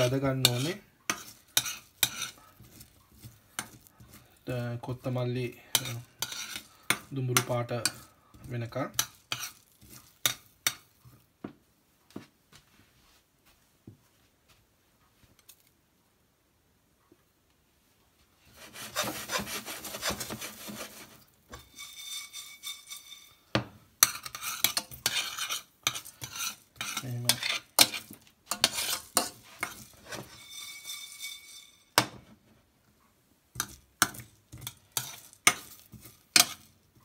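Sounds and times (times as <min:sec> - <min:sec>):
spoon stirring seeds in a pan: 0:00.0 - 0:11.3, 0:18.4 - 0:32.4, 0:33.5 - 0:37.0.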